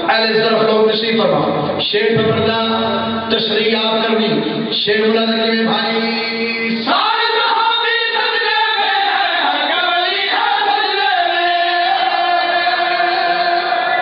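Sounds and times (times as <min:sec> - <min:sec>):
man chanting into a microphone: 0:00.0 - 0:14.0.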